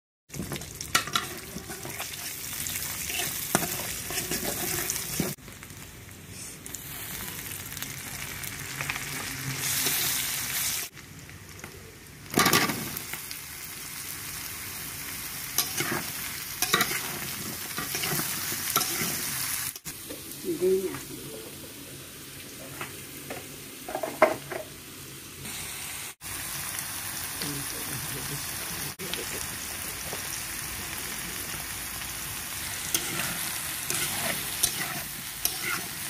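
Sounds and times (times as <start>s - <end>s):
onions sizzling in hot oil: 0.3s - 36.0s
vegetables frying: 0.3s - 36.0s
metal spatula scraping pan: 3.0s - 5.4s, 15.6s - 19.3s, 32.9s - 36.0s.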